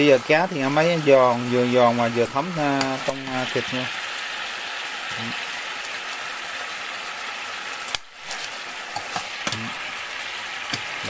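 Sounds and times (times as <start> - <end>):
fish sizzling in a pan: 0.0 - 11.0.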